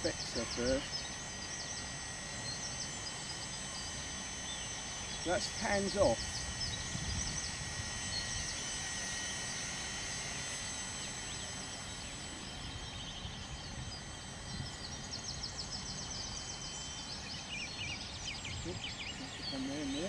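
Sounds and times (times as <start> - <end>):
model helicopter whine: 0.0 - 20.0
wind buffeting microphone: 6.2 - 8.6.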